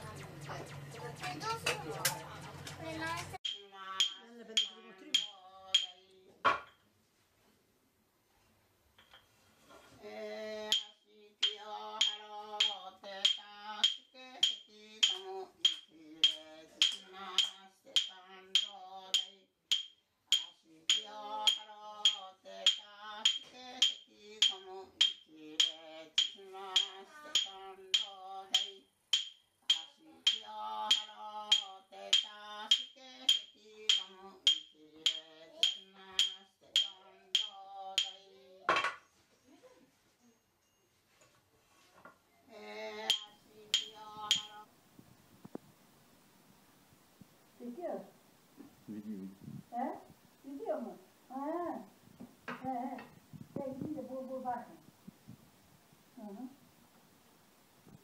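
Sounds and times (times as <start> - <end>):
wooden clappers clacking: 3.4 - 6.0, 10.7 - 38.2, 43.1 - 44.6
stick beating wooden block: 3.4 - 6.6, 10.7 - 38.2, 43.1 - 44.6.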